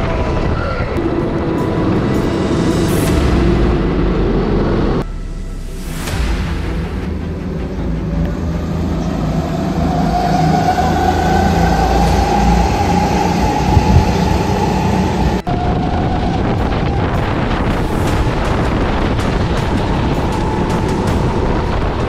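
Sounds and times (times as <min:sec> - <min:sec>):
racing kart engines accelerating: 0:07.4 - 0:22.0.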